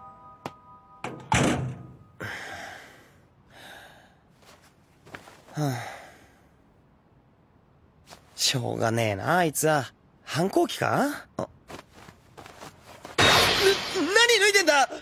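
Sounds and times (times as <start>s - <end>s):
door shutting hard: 1.1s - 1.9s.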